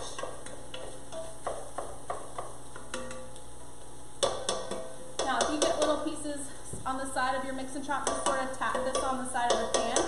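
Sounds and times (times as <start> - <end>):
utensil knocking against pan: 4.2 - 6.1, 8.0 - 10.0
utensil scraping pot: 7.8 - 10.0.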